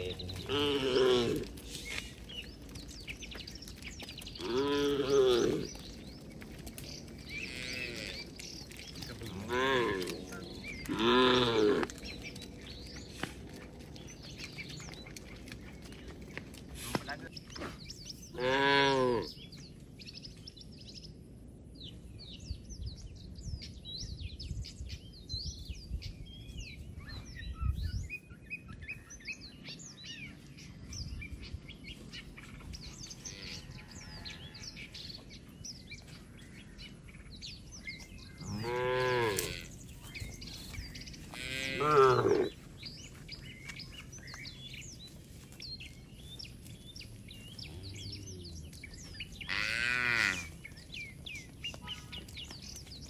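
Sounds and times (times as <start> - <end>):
cattle mooing: 0.0 - 1.6, 9.2 - 12.0, 18.4 - 19.3, 38.4 - 39.7, 41.4 - 42.6
small birds chirping: 0.0 - 53.0.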